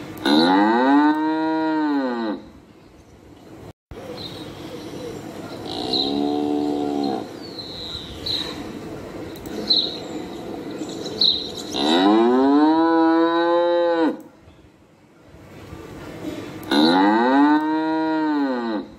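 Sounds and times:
cattle mooing: 0.2 - 2.4, 5.7 - 7.3, 11.7 - 14.2, 16.7 - 18.9.

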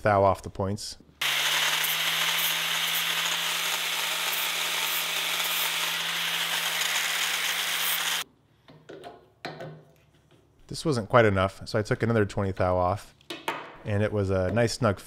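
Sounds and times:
angle grinder grinding steel: 1.2 - 8.2.

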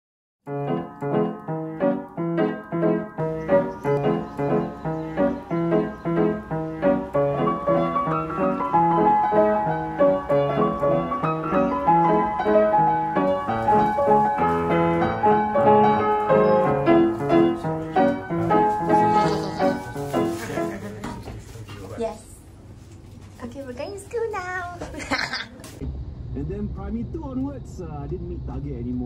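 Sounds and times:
piano music: 0.4 - 21.2.

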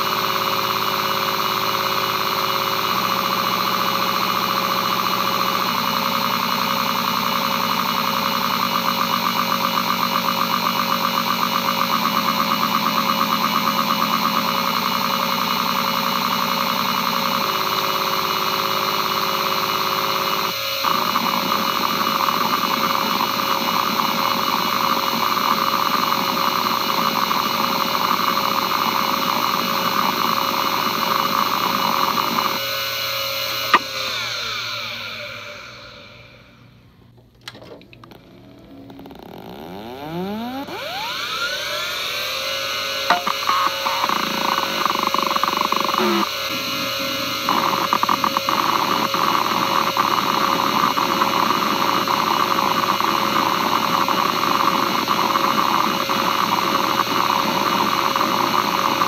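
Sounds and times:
hard drive heads buzzing: 0.0 - 59.0
hard drive spindle whine: 0.0 - 59.0
hard drive click: 33.7 - 34.3, 43.1 - 46.3.

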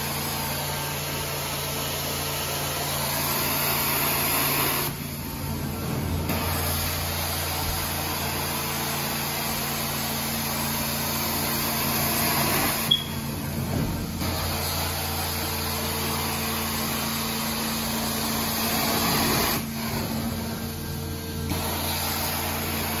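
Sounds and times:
low machine hum: 5.0 - 7.9
short sharp squeak: 12.8 - 13.3.

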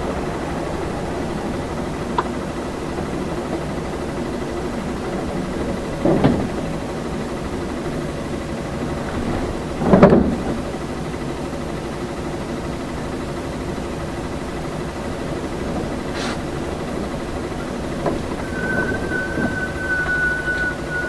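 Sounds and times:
bus engine and road drone: 0.0 - 21.0.

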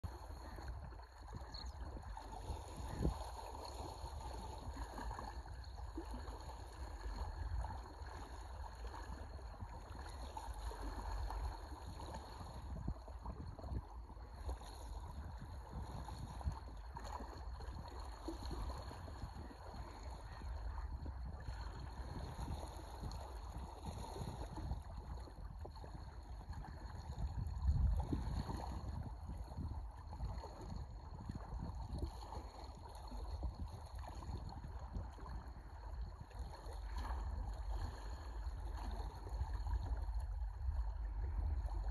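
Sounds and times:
small waves lapping: 0.0 - 41.9
wind rumbling on microphone: 0.0 - 41.9.

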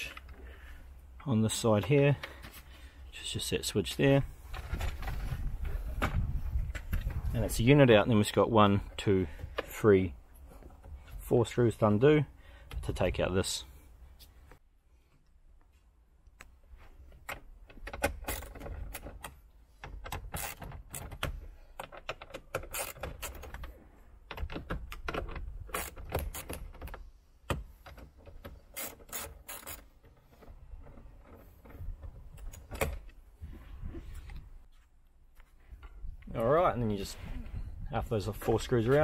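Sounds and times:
hand tool ratcheting clicks: 17.9 - 23.6, 24.3 - 26.9, 28.3 - 29.9.

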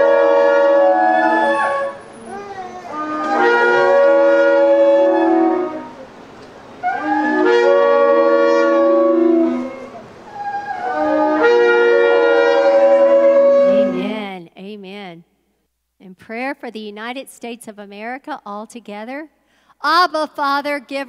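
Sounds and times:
shofars blowing long blasts: 0.0 - 2.1, 2.9 - 14.1.

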